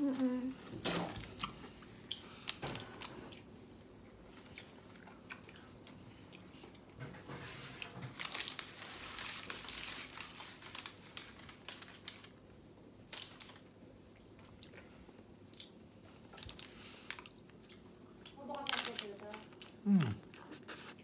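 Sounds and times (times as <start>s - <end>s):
pizza crust crackling: 7.4s - 12.4s
baking paper crinkling: 7.4s - 13.8s, 18.4s - 21.0s.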